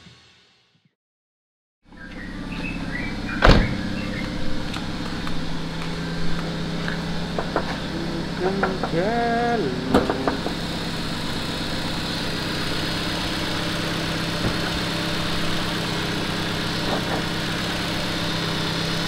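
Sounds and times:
car engine idling: 1.8 - 19.0.

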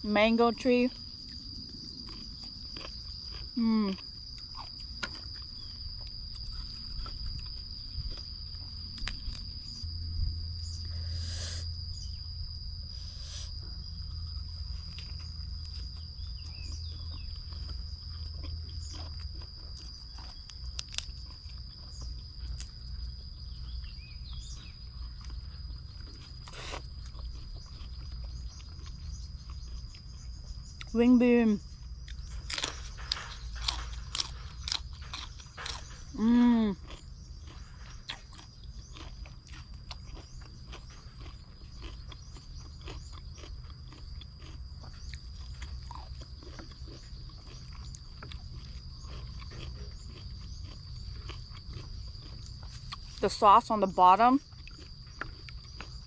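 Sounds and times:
high-pitched insect drone: 0.0 - 38.2
crunching bites of raw vegetables: 1.2 - 10.0, 13.0 - 30.9, 31.8 - 53.4, 54.4 - 56.0.

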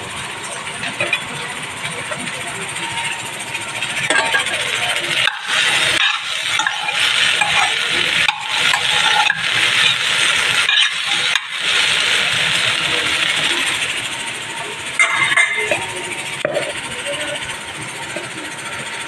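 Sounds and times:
okra sizzling in a pan: 3.1 - 16.8
metal spoon scraping a pan: 4.1 - 13.5.

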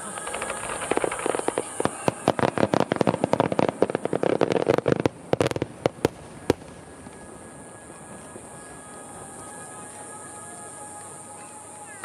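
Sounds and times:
fireworks bangs: 0.0 - 8.8.

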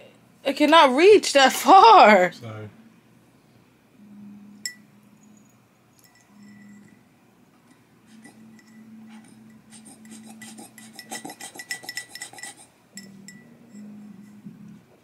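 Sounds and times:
clicks and clinks against glass: 4.7 - 7.0.

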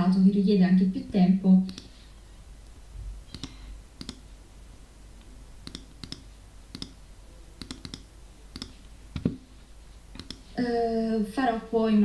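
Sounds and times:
faint low hum: 0.0 - 12.0
computer mouse clicks: 1.6 - 2.0, 3.3 - 4.2, 5.6 - 7.0, 7.6 - 9.4, 10.2 - 10.5.

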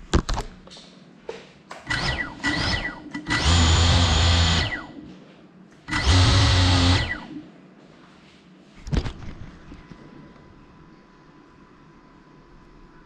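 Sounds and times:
drone motors revving: 1.9 - 5.0, 5.9 - 7.4.

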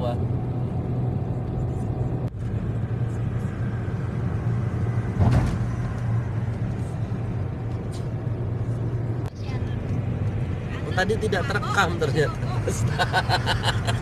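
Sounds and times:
car cabin road drone: 0.0 - 14.0
brief thump: 5.2 - 5.7.

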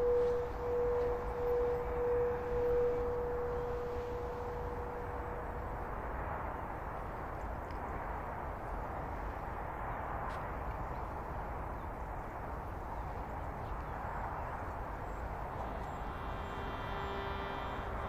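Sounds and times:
held tone: 0.0 - 6.0, 15.5 - 18.0
outdoor rumble and hiss: 0.0 - 18.0.

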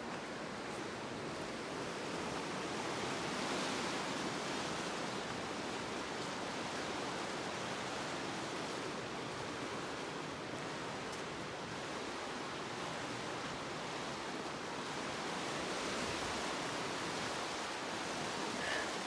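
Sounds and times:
falling water rushing: 11.4 - 19.0.

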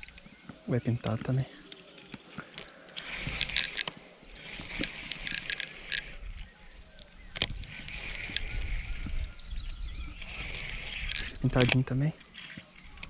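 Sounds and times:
fishing reel clicks and rattles: 2.6 - 9.1, 10.2 - 12.7
wind rumble on microphone: 5.8 - 11.8.

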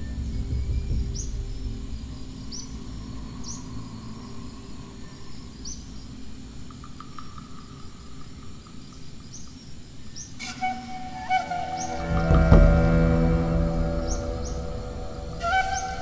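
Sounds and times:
bird chirping: 0.0 - 16.0
low background noise: 0.0 - 16.0
steady tones: 10.4 - 16.0.

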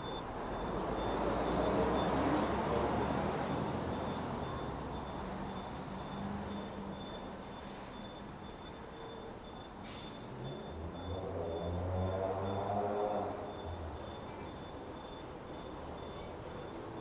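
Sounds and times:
low hum of traffic: 0.0 - 17.0
vehicle passing close: 10.3 - 13.8.

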